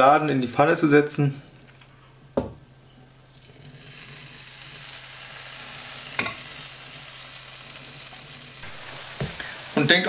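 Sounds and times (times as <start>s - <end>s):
batter sizzling in hot oil: 3.1s - 10.0s.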